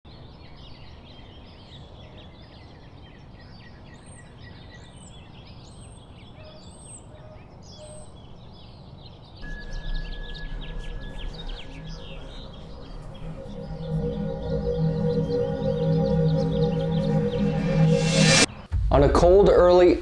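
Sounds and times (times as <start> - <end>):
high arched bird call: 9.4 - 18.7
birds chirping: 9.4 - 18.8
steady high tone: 9.4 - 19.3.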